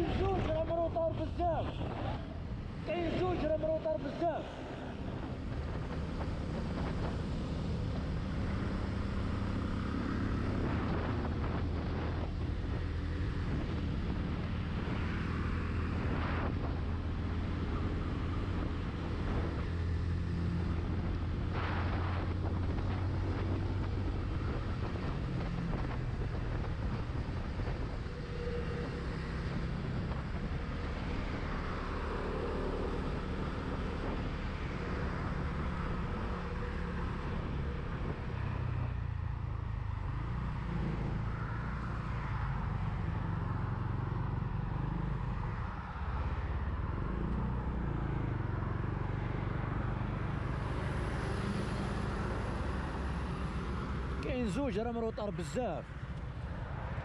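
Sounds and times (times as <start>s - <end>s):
wind noise on microphone: 5.0s - 32.0s, 33.5s - 36.3s.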